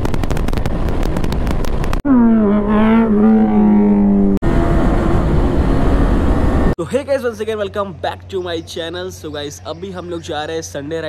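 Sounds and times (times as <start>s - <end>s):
rough motorcycle engine noise: 0.0s - 6.8s
motorcycle engine revving: 2.0s - 6.8s.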